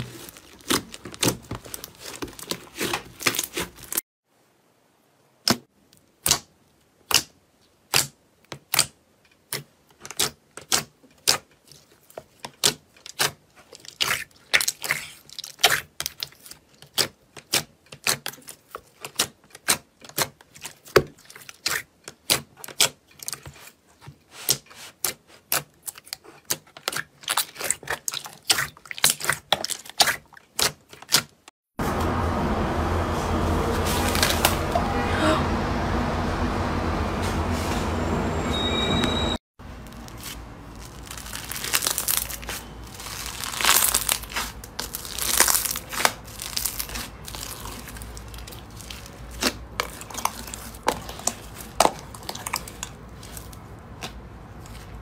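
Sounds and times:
low rumbling background: 0:31.8 - 0:39.2.

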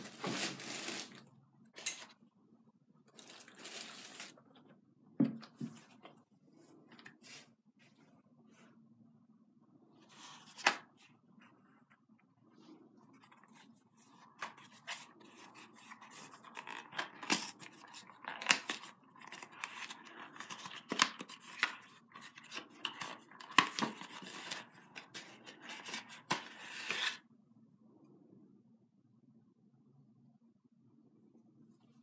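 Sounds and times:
paper crackling and rustling: 0:00.0 - 0:01.2, 0:03.1 - 0:04.4, 0:13.3 - 0:27.2.

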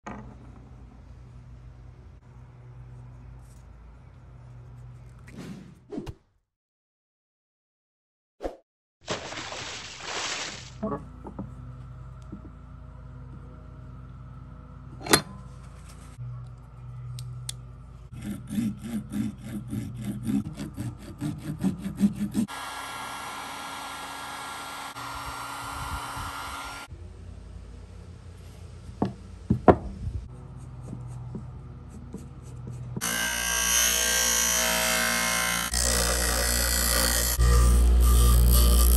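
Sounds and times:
bench grinder grinding metal: 0:18.1 - 0:26.9, 0:33.0 - 0:38.9
heat gun blowing: 0:22.5 - 0:26.9.

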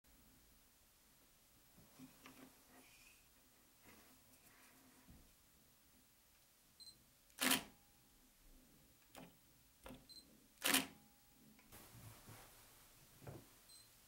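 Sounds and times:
camera shutter clack: 0:07.4 - 0:07.7, 0:10.6 - 0:11.0.

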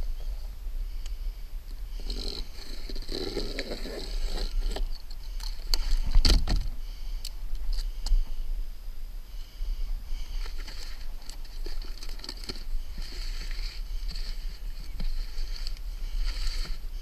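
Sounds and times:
steady low rumble: 0:00.0 - 0:17.0
roofing membrane rustling and crinkling: 0:01.9 - 0:08.3, 0:10.2 - 0:17.0.

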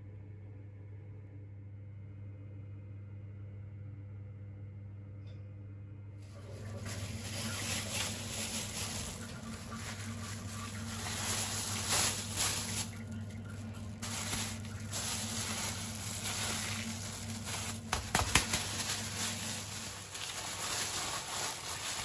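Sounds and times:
plastic bag crinkling: 0:06.2 - 0:22.0.

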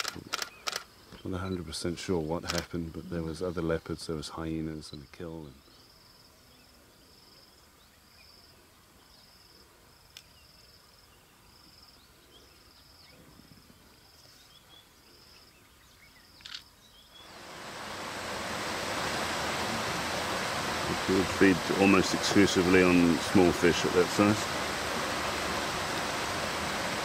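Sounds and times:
sharp clicks: 0:00.0 - 0:00.9, 0:02.4 - 0:02.7
insect chirping: 0:00.0 - 0:27.0
loud steady rushing noise: 0:17.3 - 0:27.0.

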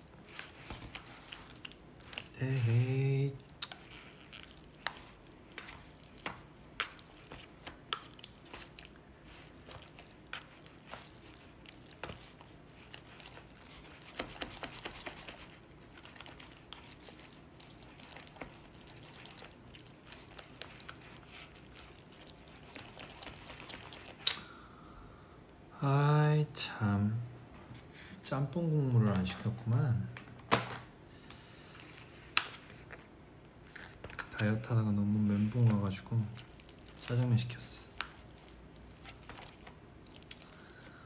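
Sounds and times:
rustling of food containers: 0:03.8 - 0:24.3, 0:31.6 - 0:41.0.

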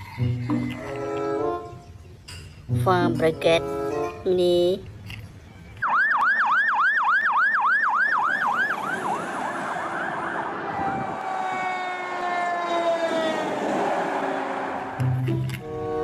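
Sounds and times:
fire engine siren yelping: 0:05.8 - 0:16.0
steady falling siren tone: 0:05.8 - 0:16.0.

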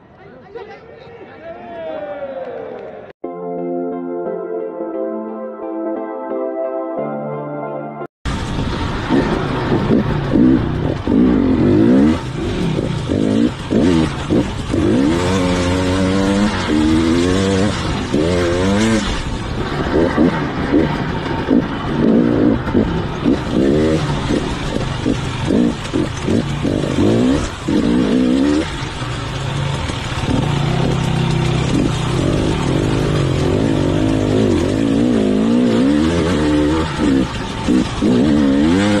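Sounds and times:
dirt bike engine revving: 0:08.4 - 0:39.0.

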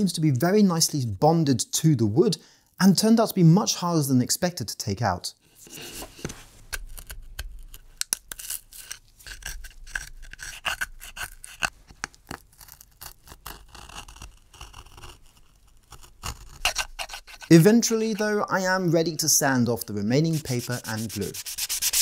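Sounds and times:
paper scraped off wood: 0:13.6 - 0:22.0.

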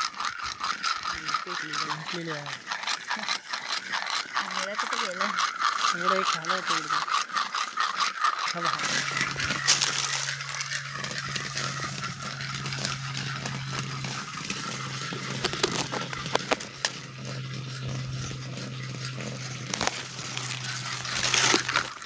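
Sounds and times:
steady low hum: 0:00.0 - 0:22.0
dry leaves rustling and crackling: 0:08.5 - 0:22.0.

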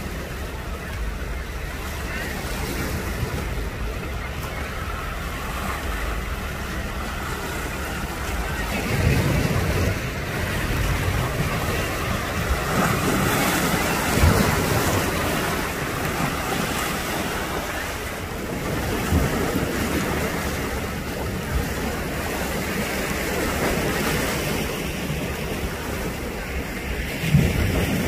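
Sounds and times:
surf washing against rocks: 0:00.0 - 0:28.0
wind buffeting microphone: 0:00.0 - 0:28.0.

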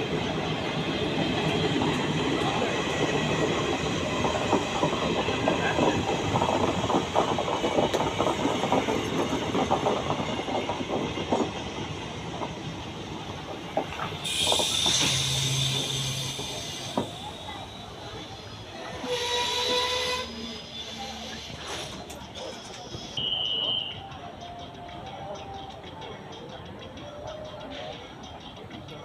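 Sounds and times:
train wheels clattering over rails: 0:00.0 - 0:20.0.

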